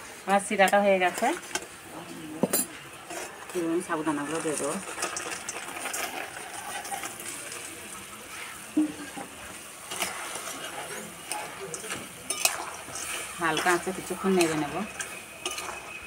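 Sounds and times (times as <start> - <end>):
syrup hissing and bubbling: 2.8 - 16.0
utensil clinking on pan: 9.9 - 16.0.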